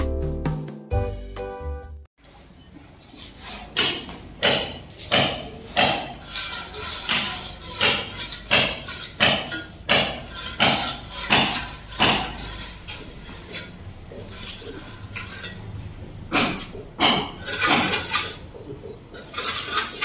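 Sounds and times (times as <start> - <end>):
trowel scraping wet cement: 5.0 - 15.7, 16.5 - 20.0.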